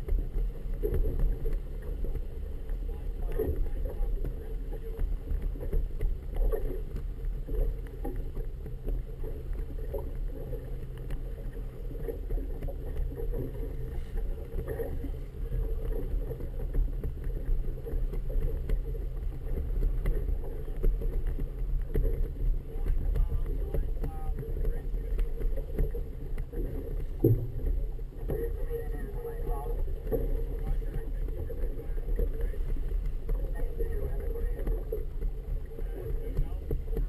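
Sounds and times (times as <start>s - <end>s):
water washing against hull: 0.0s - 37.0s.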